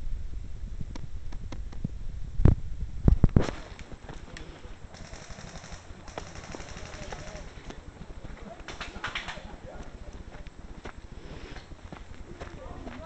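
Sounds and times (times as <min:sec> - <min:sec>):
wind rumble on microphone: 0:00.0 - 0:04.0
sharp clicks: 0:03.8 - 0:07.8.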